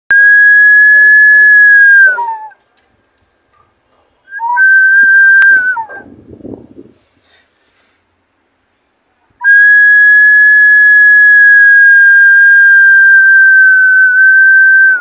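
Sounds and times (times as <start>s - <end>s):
kettle whistling: 0.1s - 2.5s, 4.3s - 6.0s, 9.4s - 15.0s.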